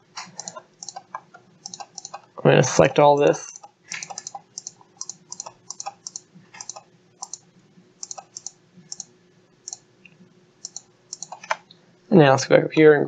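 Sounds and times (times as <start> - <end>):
computer mouse clicking: 0.2 - 2.3, 3.5 - 7.4, 8.0 - 9.1, 10.6 - 11.6.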